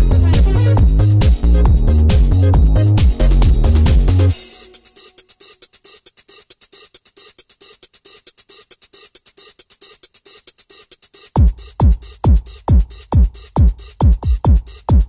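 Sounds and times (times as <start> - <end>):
deep kick drum: 0.0 - 4.4, 11.4 - 15.0
hi-hat ticks: 0.0 - 15.0.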